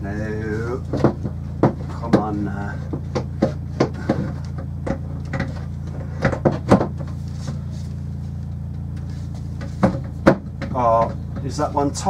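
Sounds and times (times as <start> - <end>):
boat engine hum: 0.0 - 12.0.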